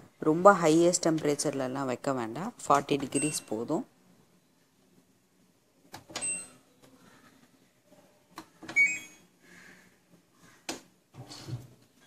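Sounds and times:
short electronic beeps: 0:08.8 - 0:09.2.

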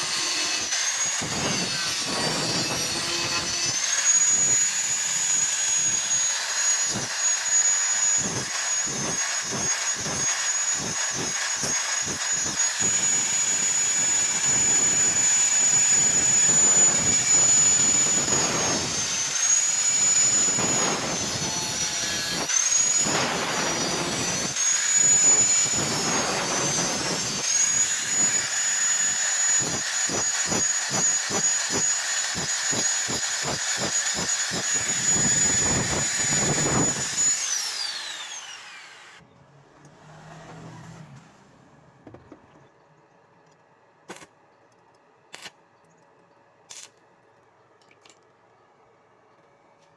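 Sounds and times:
angle grinder grinding steel: 0:00.0 - 0:39.2
angle grinder winding down: 0:00.0 - 0:39.2.

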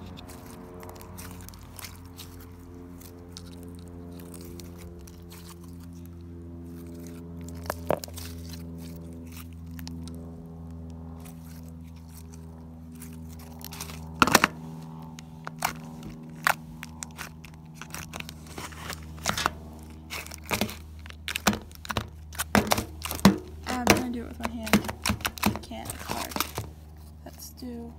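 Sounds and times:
steady low hum: 0:00.0 - 0:27.9.

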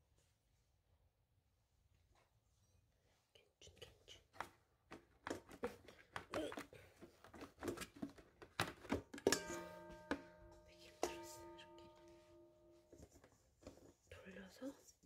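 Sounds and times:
plastic guard clattering on metal bowl: 0:07.4 - 0:10.4
metal bowl ringing: 0:09.3 - 0:13.2.

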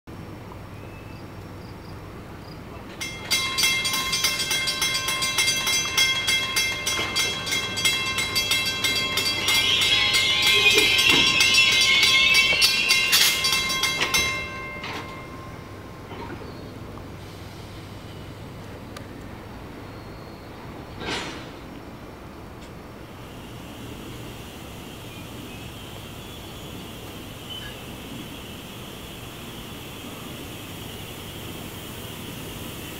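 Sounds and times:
train running noise: 0:00.1 - 0:32.9
train bell ringing rapidly: 0:03.0 - 0:16.1.

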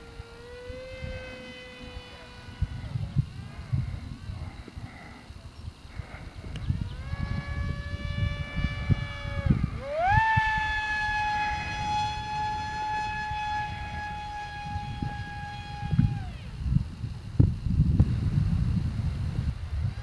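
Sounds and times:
model jet propeller whining: 0:00.0 - 0:20.0
wind rumbling on microphone: 0:00.0 - 0:20.0.

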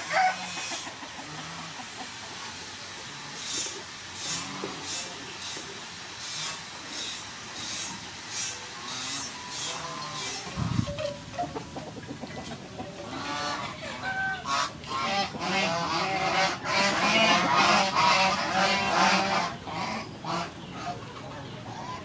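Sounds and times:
farm fowl calling: 0:00.0 - 0:02.4, 0:08.8 - 0:22.0.

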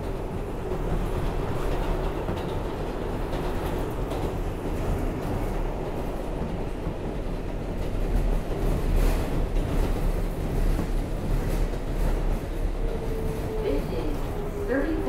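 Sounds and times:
subway train rumbling: 0:00.0 - 0:15.0.

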